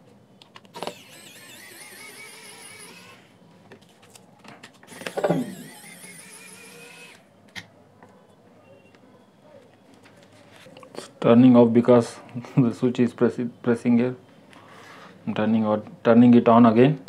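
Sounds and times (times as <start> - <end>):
electric screwdriver motor whining: 0.8 - 3.3, 4.9 - 7.3.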